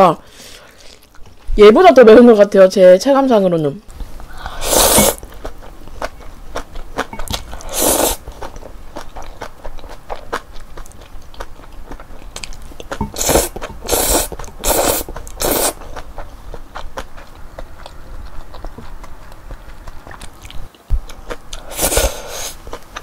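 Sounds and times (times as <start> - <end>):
wet chewing: 4.0 - 23.0
noodle slurping: 4.3 - 6.1, 7.1 - 8.4, 13.0 - 16.1, 21.6 - 22.7.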